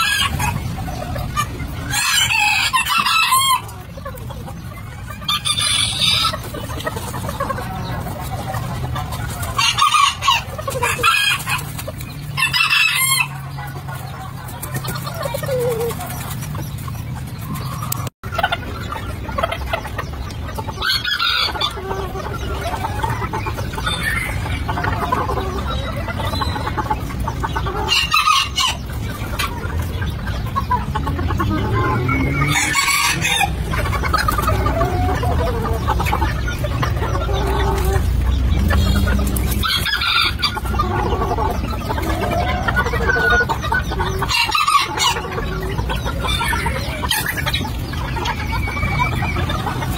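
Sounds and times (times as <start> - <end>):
roosters crowing: 0.0 - 4.0, 9.0 - 13.9, 20.6 - 29.6, 30.3 - 49.9
chickens clucking: 0.0 - 49.9.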